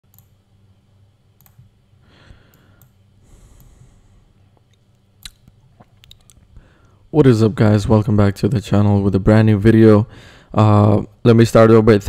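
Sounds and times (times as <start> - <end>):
steady low hum: 0.0 - 12.0
computer mouse clicks: 0.1 - 0.3, 1.4 - 1.7, 2.5 - 3.0, 4.7 - 6.5.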